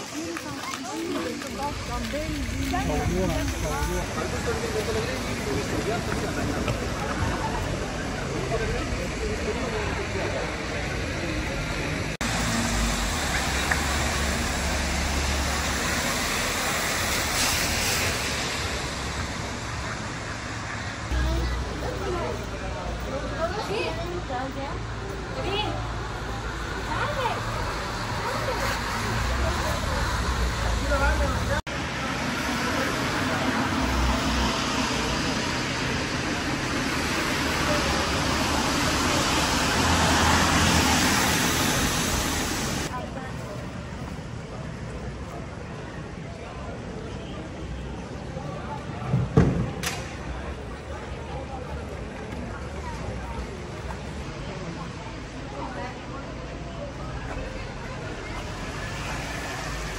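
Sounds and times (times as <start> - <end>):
traffic on wet road: 0.0 - 59.9
car tyres hissing on wet road: 12.2 - 21.1, 26.4 - 42.9, 58.3 - 59.9.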